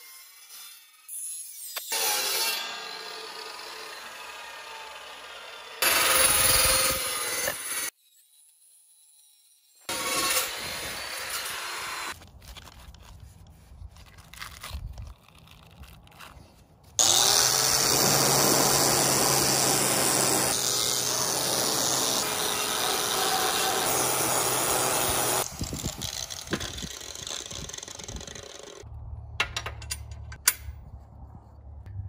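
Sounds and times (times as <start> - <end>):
wire brush grinder scouring steel: 0.0 - 12.2, 17.0 - 28.8.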